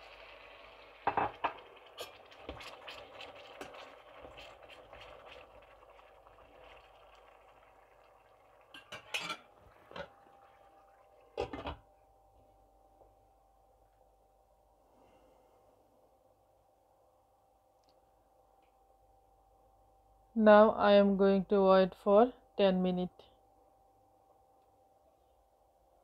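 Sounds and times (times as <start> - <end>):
curry sizzling: 0.0 - 11.8
glass lid clinking: 8.7 - 9.5
spatula clattering into pan: 8.7 - 9.5.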